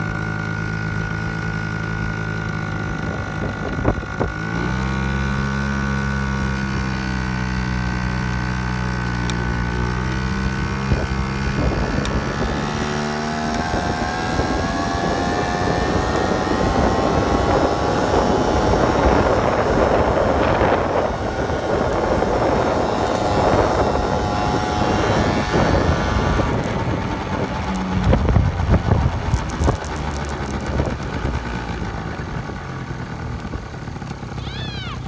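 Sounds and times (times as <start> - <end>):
scooter engine buzzing: 0.0 - 35.0
wind noise on microphone: 2.5 - 32.5.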